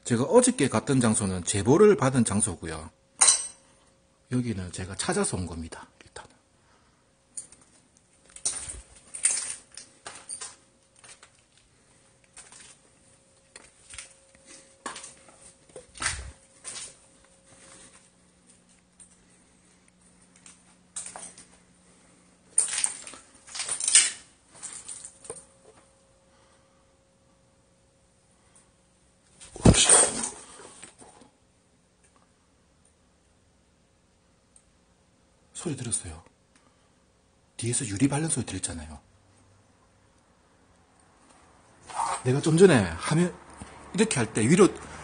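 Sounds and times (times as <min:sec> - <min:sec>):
faint steady hum: 0:00.0 - 0:45.0
clinks and scrapes: 0:07.4 - 0:11.6, 0:22.6 - 0:25.5
footsteps crunching on broken glass: 0:08.2 - 0:18.8, 0:20.3 - 0:21.6, 0:22.5 - 0:25.5.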